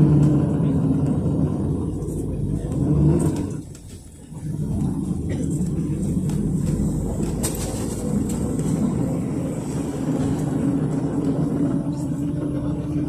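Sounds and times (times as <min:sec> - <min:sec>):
bus engine droning: 0:00.0 - 0:13.0
road noise: 0:00.0 - 0:13.0.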